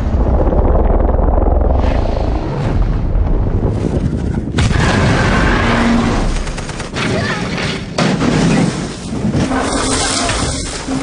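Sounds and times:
rush of noise: 0:00.0 - 0:06.8
deep booming monster rumble: 0:00.0 - 0:06.9.

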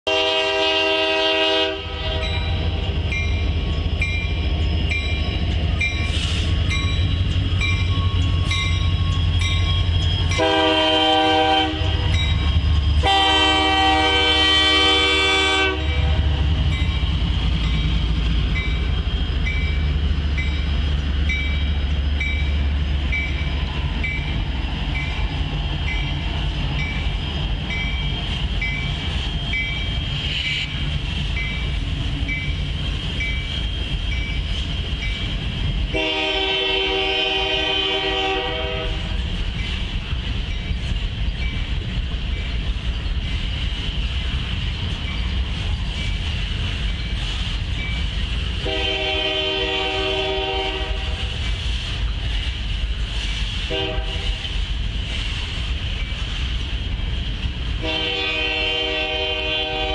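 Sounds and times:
train air horn blasts: 0:00.1 - 0:02.8, 0:10.2 - 0:12.2, 0:13.0 - 0:16.5, 0:30.0 - 0:30.8, 0:35.9 - 0:39.2, 0:48.6 - 0:51.4, 0:53.6 - 0:54.5, 0:57.8 - 0:59.9
boxcars rolling on rails: 0:00.1 - 0:59.9.

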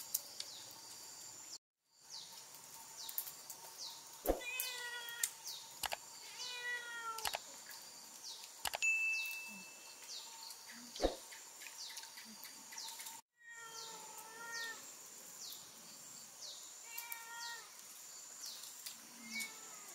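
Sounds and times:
cat meowing: 0:04.4 - 0:05.3, 0:06.3 - 0:07.3, 0:13.4 - 0:14.8, 0:16.8 - 0:17.7.

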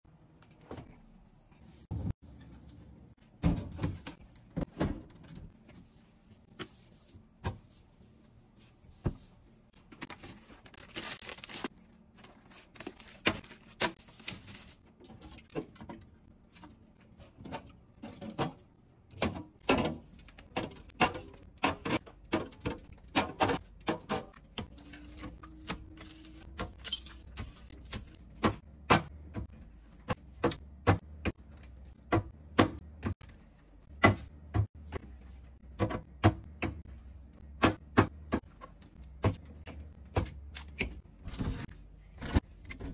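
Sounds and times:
packaging rustle: 0:10.4 - 0:14.8
groceries knocking on glass shelves: 0:26.4 - 0:31.4, 0:32.0 - 0:33.2, 0:33.9 - 0:35.0, 0:35.6 - 0:36.9.

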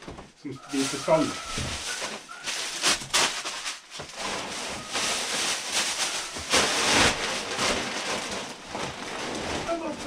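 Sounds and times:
plastic bags crinkling: 0:00.5 - 0:10.0.

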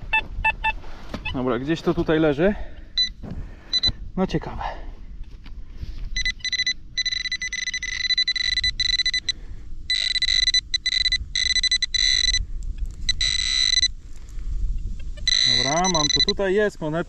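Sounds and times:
pinpointer high-pitched tone: 0:06.2 - 0:12.4, 0:13.1 - 0:14.0, 0:15.2 - 0:16.4.

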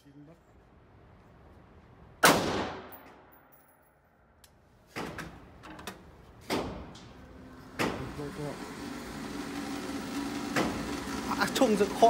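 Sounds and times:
rifle shot: 0:02.2 - 0:03.3.

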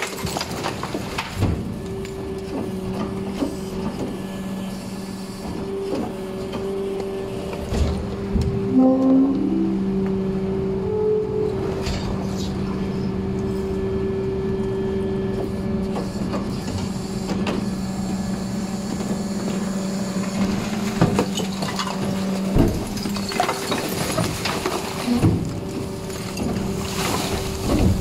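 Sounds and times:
hydraulic compactor humming: 0:00.0 - 0:28.0
rubbish bags thudding and rattling: 0:20.4 - 0:28.0.

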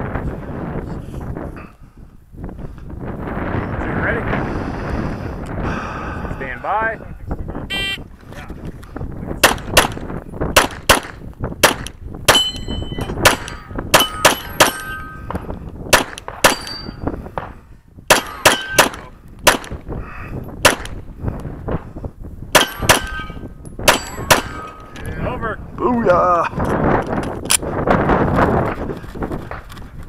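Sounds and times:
pistol shots: 0:09.4 - 0:15.0, 0:15.9 - 0:19.8, 0:20.6 - 0:21.0, 0:22.5 - 0:24.8
metallic clang of steel targets: 0:10.9 - 0:15.4, 0:16.0 - 0:17.2, 0:18.1 - 0:19.7, 0:22.6 - 0:25.0.

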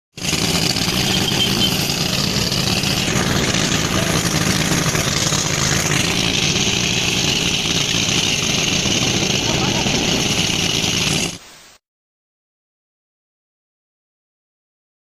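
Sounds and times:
threshing machine running: 0:00.2 - 0:11.4.

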